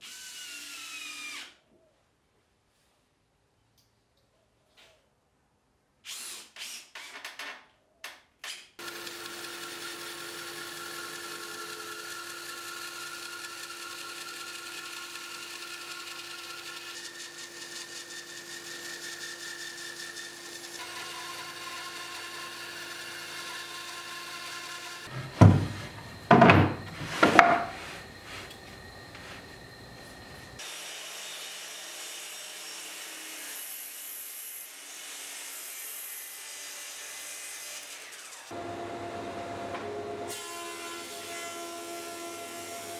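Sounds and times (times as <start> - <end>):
bandsaw running: 8.8 - 36.0
loud knocks: 25.1 - 27.8.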